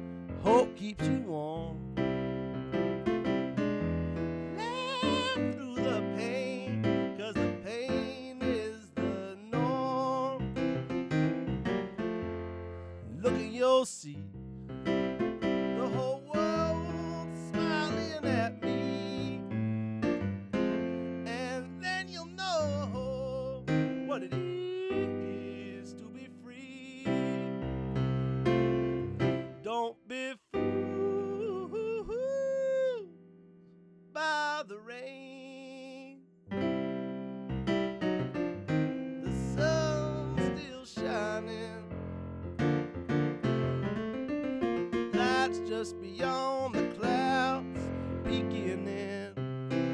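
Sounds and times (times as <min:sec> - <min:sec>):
digital piano accompaniment: 0:00.0 - 0:32.0, 0:36.4 - 0:49.9
man singing: 0:00.4 - 0:01.9, 0:04.5 - 0:10.6, 0:13.0 - 0:14.3, 0:15.7 - 0:19.6, 0:21.2 - 0:27.6, 0:29.6 - 0:33.1, 0:34.2 - 0:36.2, 0:39.2 - 0:41.9, 0:45.1 - 0:49.9.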